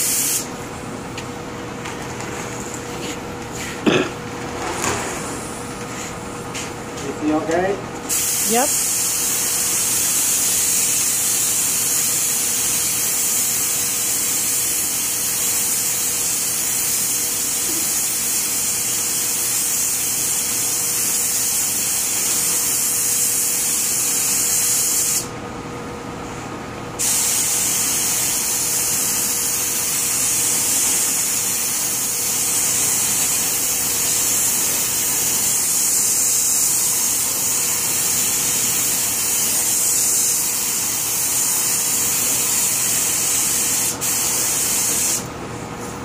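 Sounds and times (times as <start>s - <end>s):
paint spray gun hissing: 0.0s - 0.5s, 8.1s - 25.3s, 27.0s - 45.3s.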